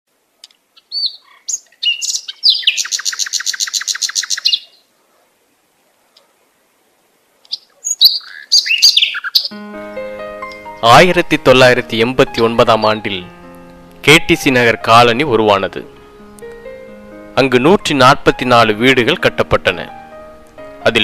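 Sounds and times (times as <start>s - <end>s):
bird trill: 0.8s - 4.8s, 7.5s - 10.8s
bird chirps: 0.8s - 4.9s, 7.5s - 10.8s.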